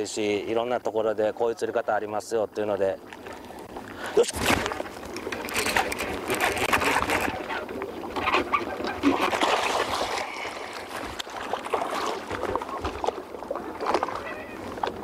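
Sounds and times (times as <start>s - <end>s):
water sloshing against hull: 0.0s - 15.0s
fish thrashing and splashing: 4.4s - 15.0s.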